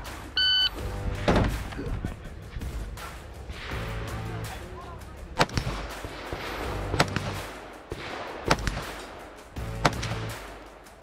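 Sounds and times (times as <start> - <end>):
rifle shots: 5.4 - 10.6.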